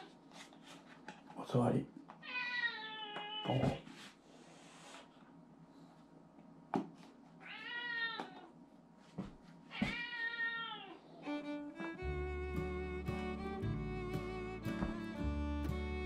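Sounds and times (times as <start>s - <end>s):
cat meowing: 2.2s - 3.7s, 7.4s - 8.5s, 9.7s - 11.1s
string music: 11.2s - 16.0s.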